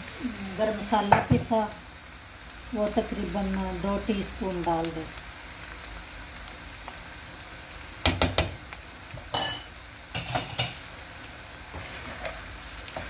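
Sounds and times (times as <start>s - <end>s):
food sizzling in frying pan: 0.0s - 13.0s.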